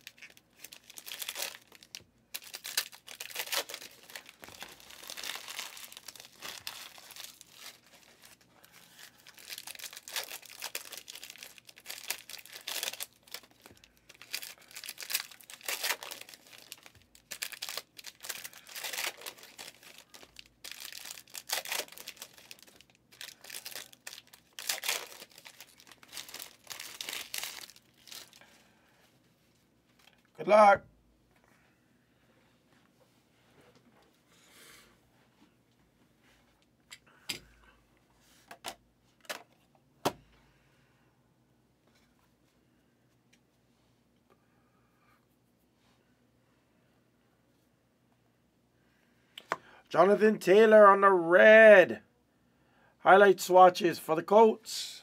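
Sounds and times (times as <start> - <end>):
foil wrappers crinkling and tearing: 0.0 - 28.4.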